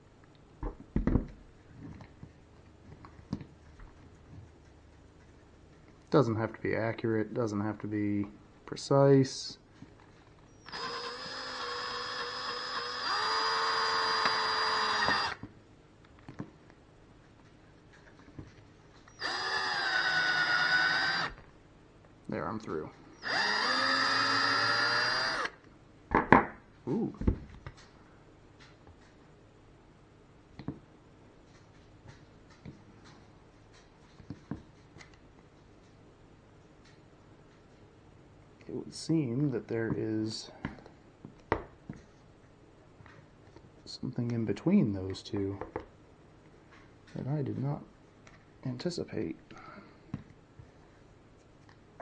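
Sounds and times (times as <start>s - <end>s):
electric drill whining: 10.6s - 15.4s, 19.1s - 21.4s, 23.2s - 25.6s.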